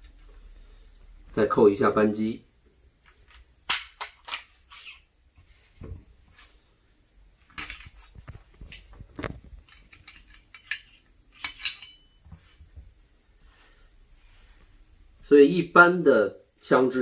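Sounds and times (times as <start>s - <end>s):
metal gun parts clicking: 7.5s - 8.1s, 8.7s - 12.1s
ringing metal clink: 11.4s - 12.2s.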